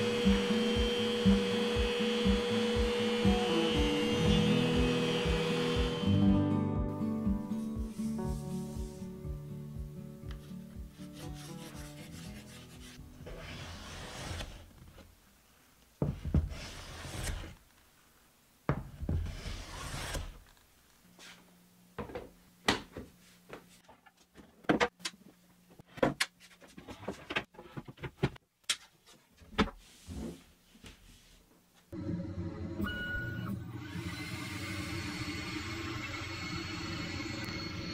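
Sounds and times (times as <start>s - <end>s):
chalk rubbing on wood: 10.9s - 14.5s.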